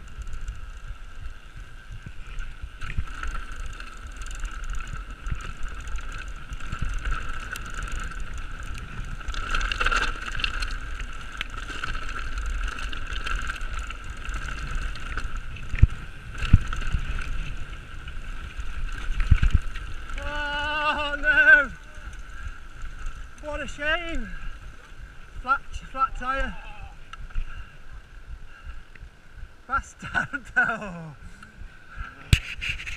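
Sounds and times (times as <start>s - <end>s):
wheels knocking on rocks: 0.0s - 24.8s
bike tyre and frame rumble: 0.0s - 32.9s
wind on microphone: 31.2s - 32.9s.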